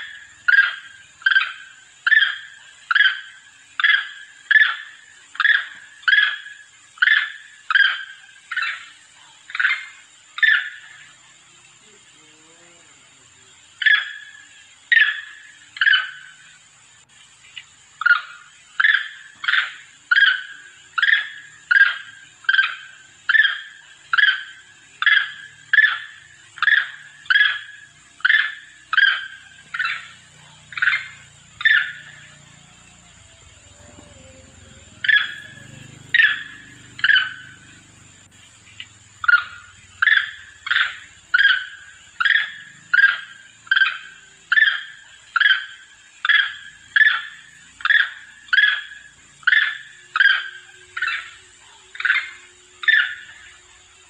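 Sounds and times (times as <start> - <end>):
monkey calls: 0.0 - 16.7, 17.6 - 54.0
high-pitched whine: 10.8 - 54.0.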